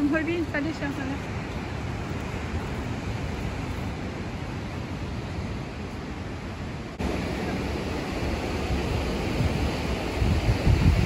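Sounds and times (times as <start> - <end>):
surf washing on rocks: 0.0 - 11.0
wind rumbling on microphone: 0.0 - 11.0.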